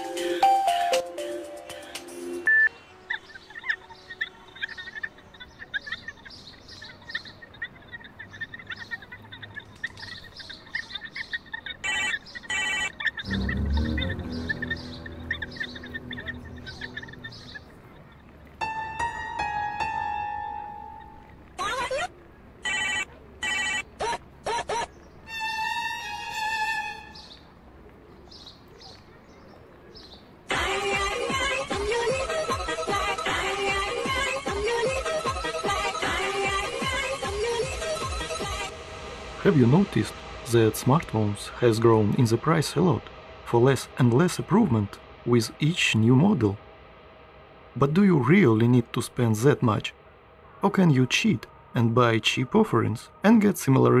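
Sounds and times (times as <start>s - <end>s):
birds chirping: 2.4s - 46.6s
faint high chirps: 12.1s - 18.2s
deep low sound: 13.2s - 18.1s
loud background music: 13.3s - 17.6s.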